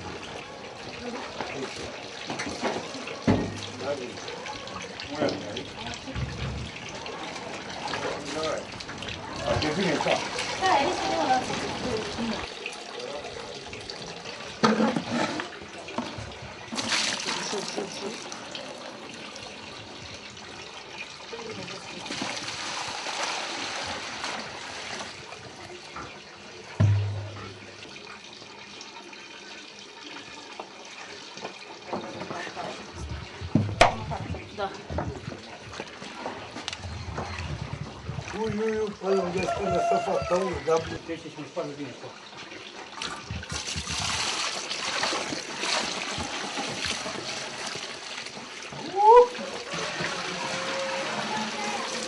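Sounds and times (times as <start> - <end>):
liquid pouring into a bucket: 0.0 - 52.0
liquid splashing into bucket: 14.4 - 18.8, 22.0 - 25.3, 26.8 - 28.4, 42.8 - 52.0.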